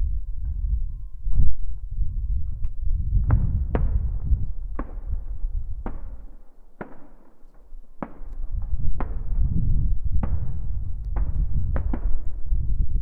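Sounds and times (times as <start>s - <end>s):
low rumble: 0.0s - 6.2s, 8.4s - 13.0s
distant fireworks bangs: 3.2s - 12.5s.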